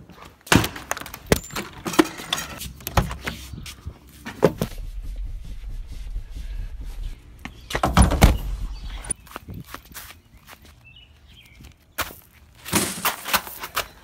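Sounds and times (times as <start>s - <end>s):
low rumble: 4.6s - 9.2s.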